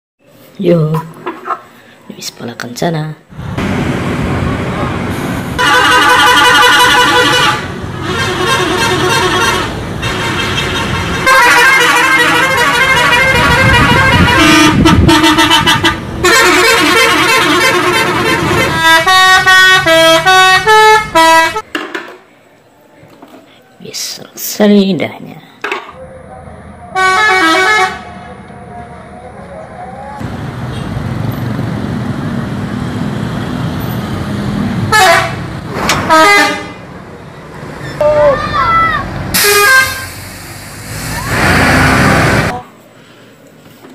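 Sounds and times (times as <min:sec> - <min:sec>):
musical bus horns playing tunes: 0:05.6 - 0:21.7, 0:26.9 - 0:28.4, 0:34.8 - 0:36.9, 0:38.0 - 0:40.4.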